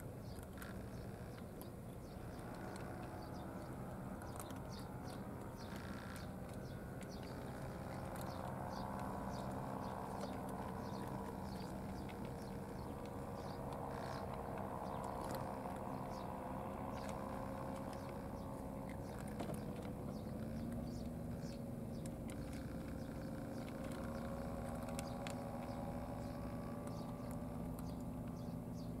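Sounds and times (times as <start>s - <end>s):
boat engine humming: 0.0s - 29.0s
cats crunching dry food: 0.4s - 28.7s.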